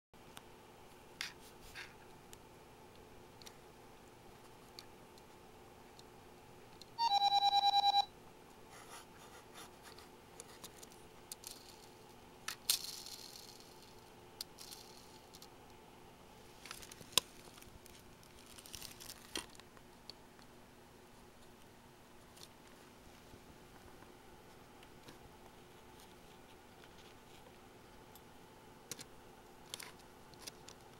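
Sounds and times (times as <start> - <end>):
electronic beeps: 7.0 - 8.1
clicks and rattles of plastic parts: 28.9 - 30.9.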